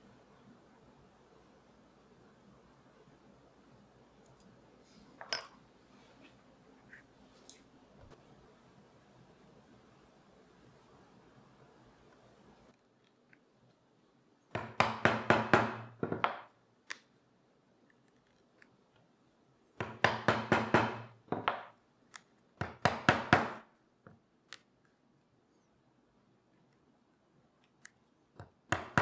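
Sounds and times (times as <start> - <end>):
mallet knocking on leather chisel: 14.5 - 16.5, 19.8 - 21.7, 22.6 - 23.6, 28.4 - 29.0.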